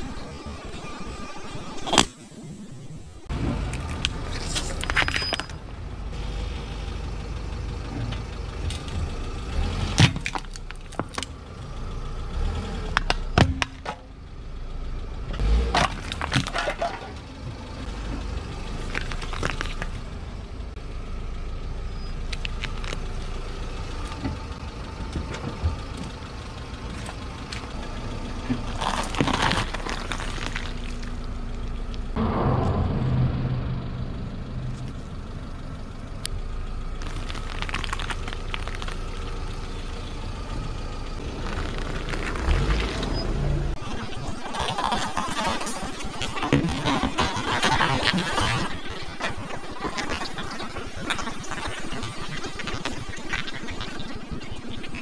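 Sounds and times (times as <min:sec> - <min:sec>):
car engine rumbling: 0:00.0 - 0:55.0
objects cracking under tyre: 0:03.7 - 0:05.6, 0:09.7 - 0:11.4, 0:12.9 - 0:14.2, 0:15.4 - 0:20.2, 0:22.2 - 0:32.1, 0:36.2 - 0:55.0.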